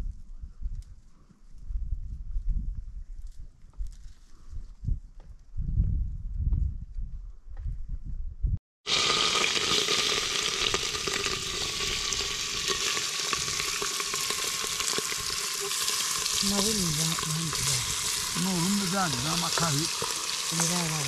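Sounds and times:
food sizzling in pot: 8.9 - 21.0
wood fire crackling: 8.9 - 21.0.

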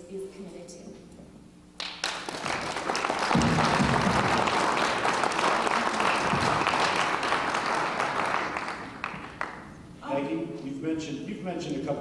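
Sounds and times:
audience applauding: 1.8 - 9.8.

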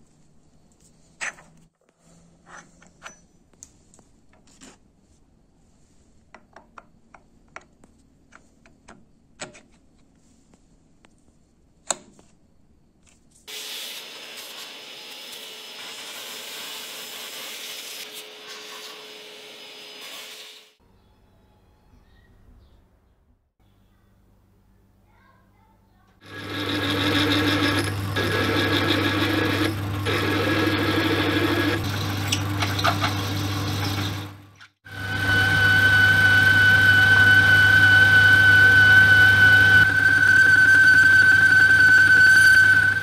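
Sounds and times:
milling machine cutting: 26.2 - 43.0.

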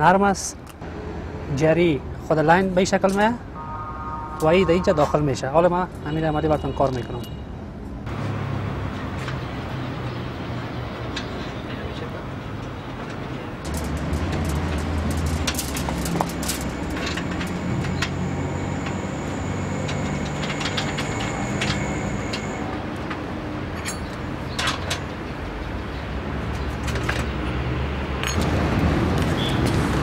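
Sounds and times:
motor vehicle engine running: 13.7 - 22.6
thin high whine: 17.7 - 22.7.

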